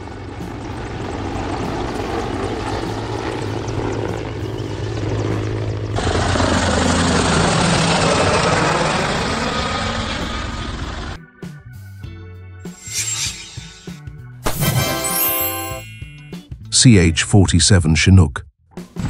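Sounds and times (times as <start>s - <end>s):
helicopter flying overhead: 0.0s - 11.2s.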